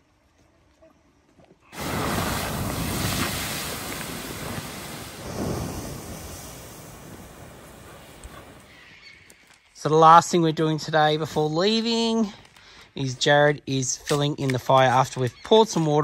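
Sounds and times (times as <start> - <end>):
water hissing on hot coals: 1.7 - 9.0.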